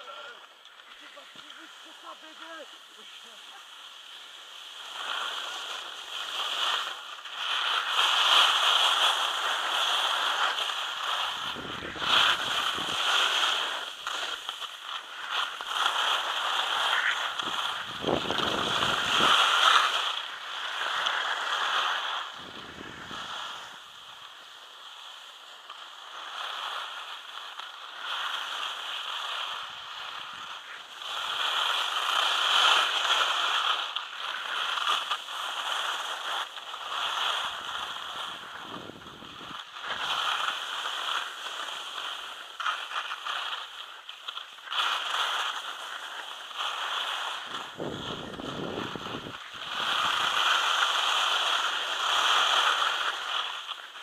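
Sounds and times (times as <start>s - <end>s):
skis scraping over snow: 0.0s - 54.0s
wind rushing on microphone: 11.3s - 13.1s, 17.4s - 19.5s, 22.3s - 23.6s, 38.2s - 39.6s, 47.5s - 50.3s.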